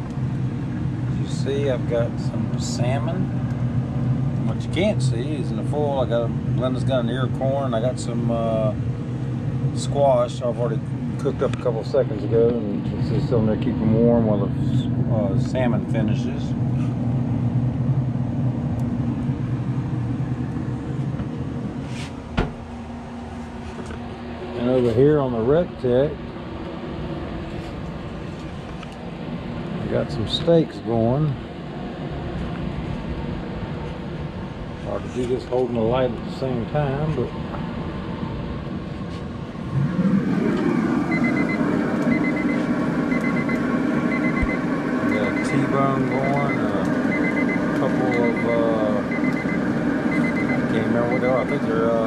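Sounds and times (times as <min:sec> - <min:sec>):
grill fan humming: 0:00.0 - 0:52.0
electronic alarm beeping: 0:41.1 - 0:51.8.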